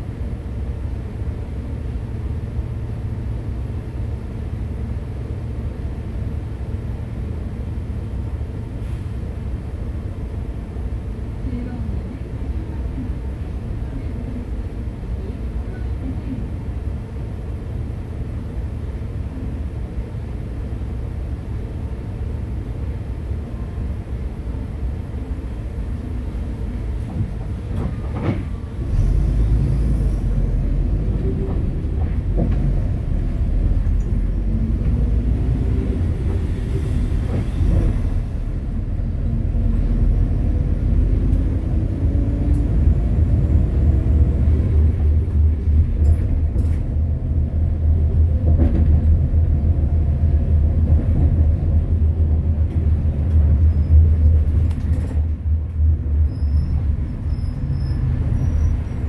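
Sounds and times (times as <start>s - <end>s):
bus engine and road rumble: 0.0s - 59.0s.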